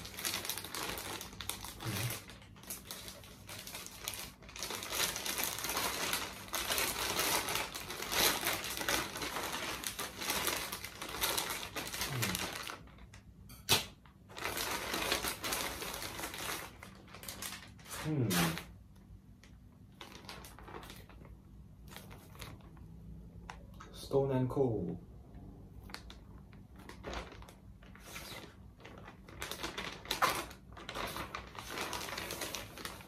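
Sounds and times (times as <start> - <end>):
plastic bag rustling and crinkling: 0.0 - 13.3, 13.9 - 24.1, 25.7 - 33.0.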